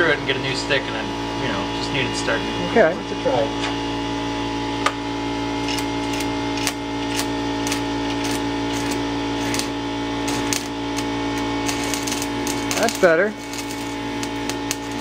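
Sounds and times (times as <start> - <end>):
steady electrical hum: 0.0 - 15.0
welding arc clicks and crackles: 5.6 - 15.0.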